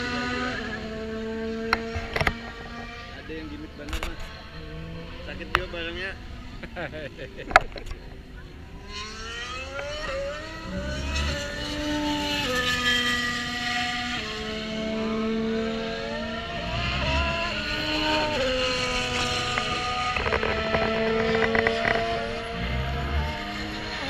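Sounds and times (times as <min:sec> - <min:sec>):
racing engines accelerating: 0:00.0 - 0:24.0.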